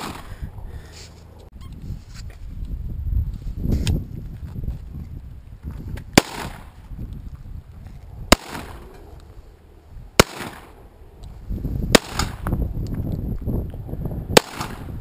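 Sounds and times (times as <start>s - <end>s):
pistol shots with echo: 8.3s - 8.8s, 10.2s - 10.8s, 12.0s - 12.4s, 14.4s - 15.0s.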